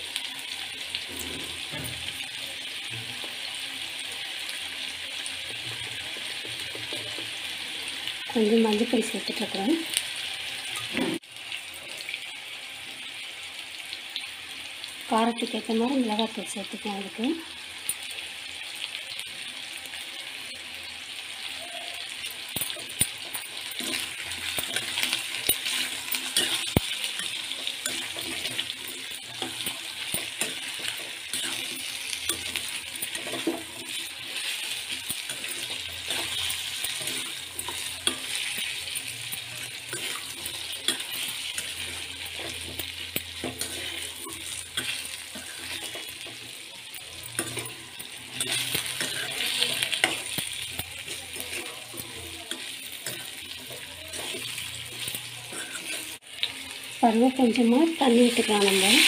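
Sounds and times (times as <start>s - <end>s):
potatoes sizzling in oil: 0.0s - 59.0s
spatula clinking and scraping on pan: 22.2s - 56.2s.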